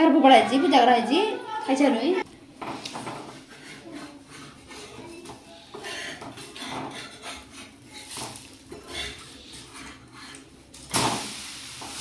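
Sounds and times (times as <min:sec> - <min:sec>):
metal spatula scraping griddle: 0:02.9 - 0:10.5.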